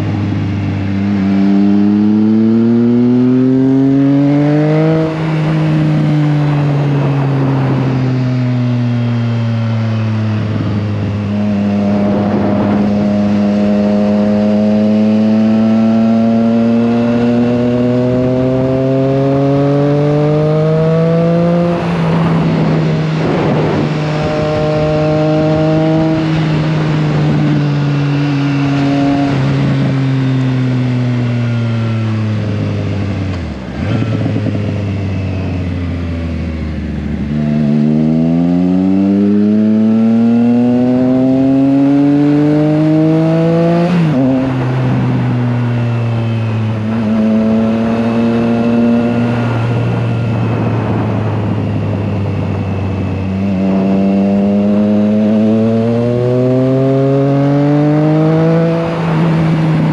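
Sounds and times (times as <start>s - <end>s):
motorcycle engine revving: 0.0s - 59.9s
wind rushing: 4.9s - 15.7s, 21.0s - 30.3s, 42.7s - 56.7s.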